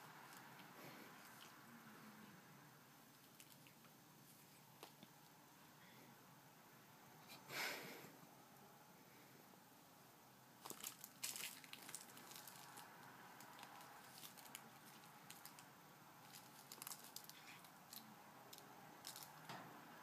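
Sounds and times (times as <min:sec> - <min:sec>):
crinkling of plush toy: 0:03.1 - 0:03.8, 0:10.6 - 0:19.5.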